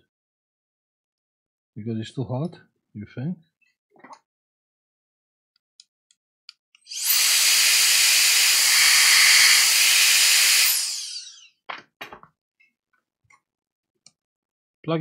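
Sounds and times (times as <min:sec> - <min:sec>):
electric air duster blowing: 0:06.9 - 0:11.4.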